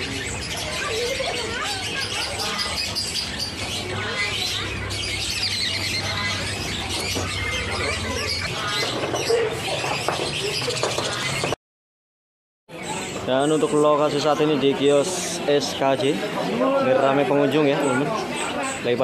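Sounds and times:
budgerigars chattering and chirping: 0:00.0 - 0:11.6, 0:12.7 - 0:16.2, 0:17.4 - 0:19.0.

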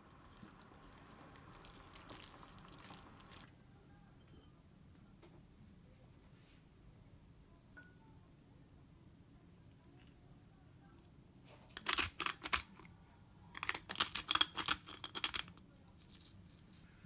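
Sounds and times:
pepper mill grinding: 0:11.7 - 0:13.0, 0:13.6 - 0:16.8.

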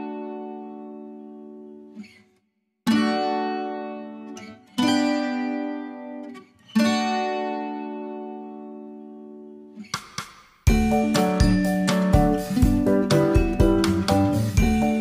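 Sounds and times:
plucked string chords: 0:10.7 - 0:15.0.

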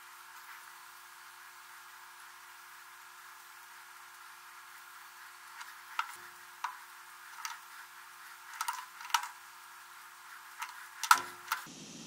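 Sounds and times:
tools clicking on plastic: 0:08.5 - 0:09.4, 0:10.6 - 0:11.7.

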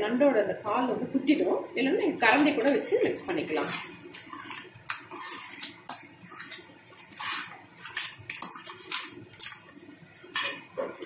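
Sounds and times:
wet paste rustling: 0:02.2 - 0:11.0.

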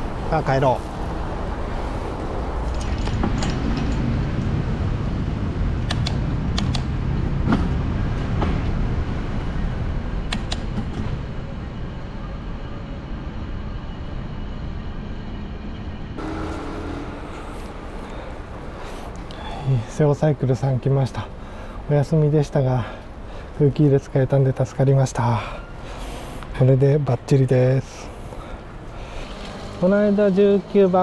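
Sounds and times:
wind and road noise: 0:00.0 - 0:31.0
sharp clicks: 0:05.8 - 0:06.9, 0:10.3 - 0:10.7.

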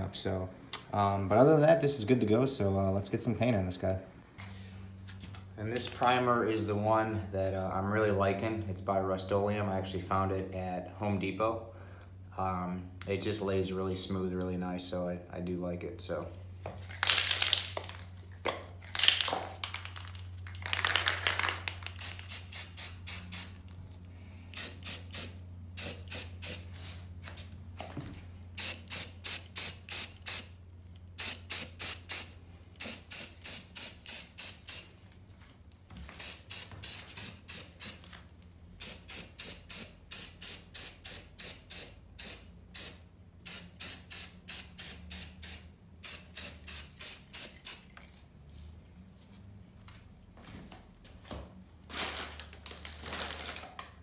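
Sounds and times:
aerosol can spraying: 0:21.8 - 0:23.6, 0:24.6 - 0:26.7, 0:28.6 - 0:30.5, 0:31.2 - 0:34.9, 0:36.2 - 0:38.0, 0:38.8 - 0:47.9.

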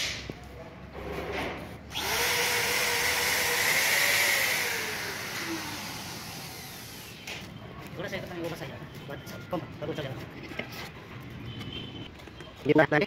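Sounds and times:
motor starting with loud hiss: 0:01.9 - 0:07.3.

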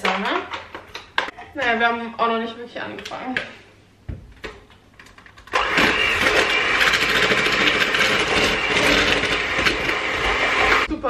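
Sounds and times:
electric hand mixer running: 0:05.5 - 0:10.9.

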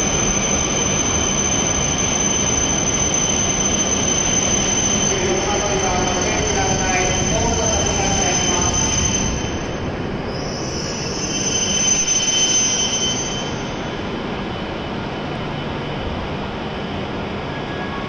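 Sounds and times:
high-pitched brake squeal: 0:00.0 - 0:14.0, 0:17.5 - 0:18.0
steady train hum: 0:00.0 - 0:18.0
train rumbling: 0:00.0 - 0:18.0.

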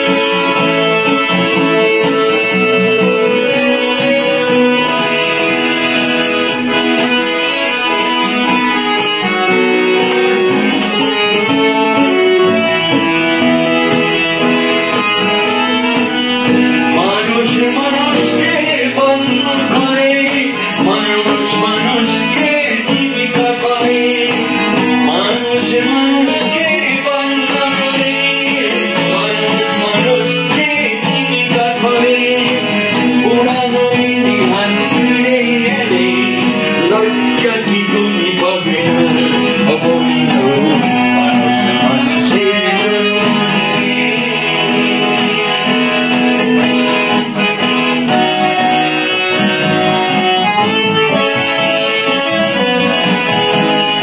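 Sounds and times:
hand harmonium: 0:00.0 - 0:54.0
strummed acoustic guitar: 0:00.0 - 0:54.0.

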